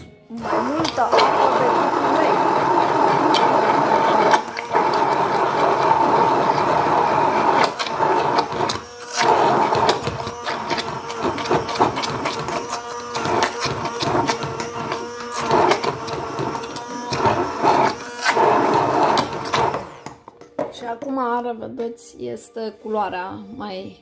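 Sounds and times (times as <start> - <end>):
blade churning thick mix: 0.3 - 20.2
immersion blender motor whine: 0.3 - 20.4.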